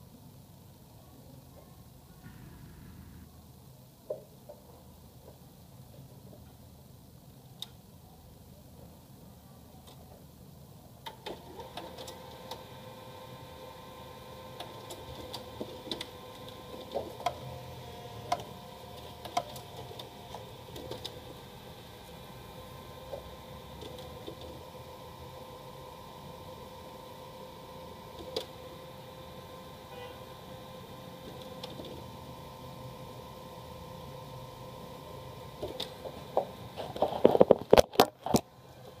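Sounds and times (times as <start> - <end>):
laser printer humming: 2.2 - 3.4
constant tone: 2.2 - 3.5
printer motor whine: 11.2 - 36.8.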